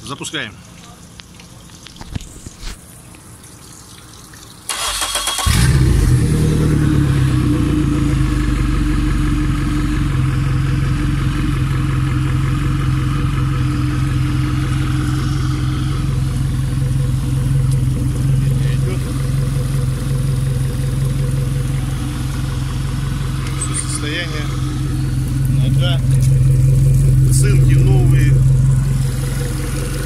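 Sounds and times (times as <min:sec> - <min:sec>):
electric starter cranking: 0:04.7 - 0:06.2
outboard motor idling: 0:04.7 - 0:30.0.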